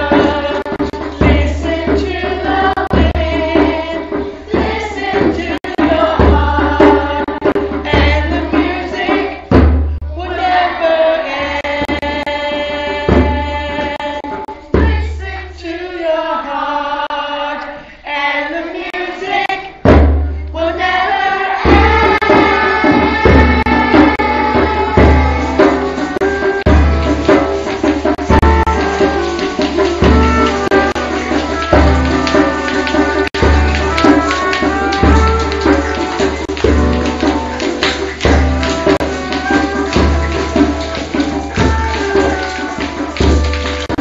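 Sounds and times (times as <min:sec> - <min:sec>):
drum accompaniment: 0:00.0 - 0:16.0, 0:18.7 - 0:44.0
children singing together: 0:00.0 - 0:19.9, 0:20.5 - 0:44.0.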